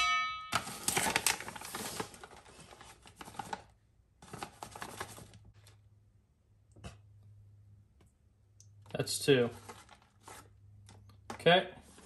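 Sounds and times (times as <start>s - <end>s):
paper bag crinkling: 0.6s - 5.8s, 9.4s - 10.5s.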